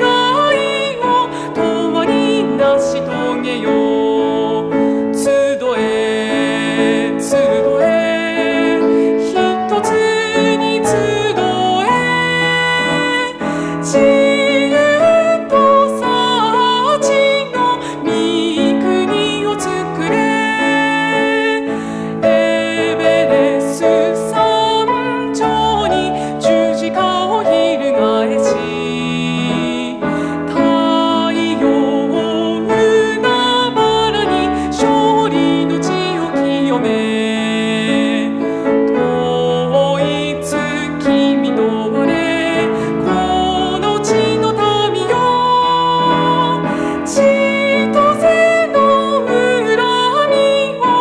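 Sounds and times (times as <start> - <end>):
person singing a hymn: 0.0 - 51.0
piano accompaniment: 0.0 - 51.0.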